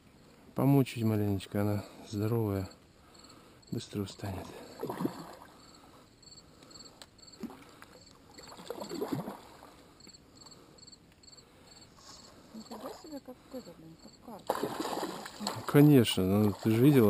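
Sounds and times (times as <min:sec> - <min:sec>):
fish splashing in water: 0:04.6 - 0:05.6, 0:08.3 - 0:09.7, 0:14.4 - 0:17.0.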